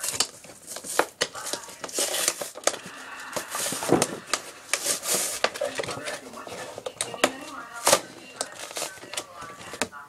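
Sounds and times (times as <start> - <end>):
packaging rustling and scraping: 0.0 - 9.9.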